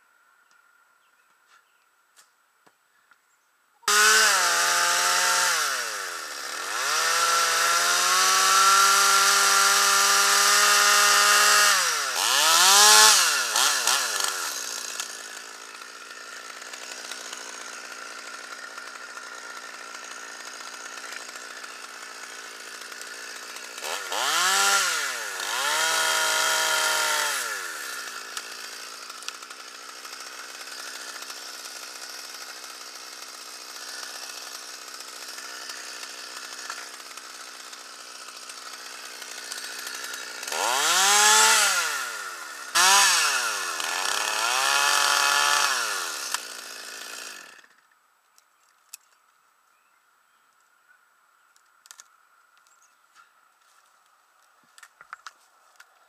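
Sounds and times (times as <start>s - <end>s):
chainsaw cutting and idling: 3.8s - 48.0s.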